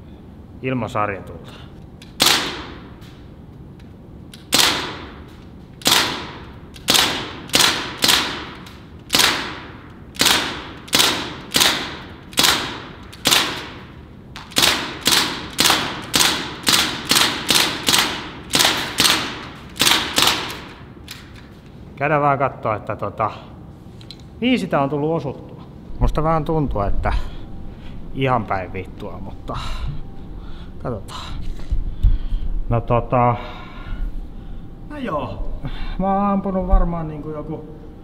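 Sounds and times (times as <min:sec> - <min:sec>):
air rifle shots: 0:02.1 - 0:03.3, 0:04.4 - 0:21.3.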